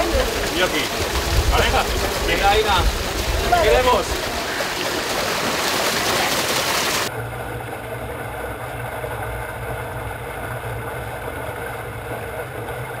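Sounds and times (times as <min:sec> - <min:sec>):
water hissing down slide: 0:00.0 - 0:07.1
water rushing loudly: 0:00.0 - 0:07.1
steady low hum: 0:07.1 - 0:13.0.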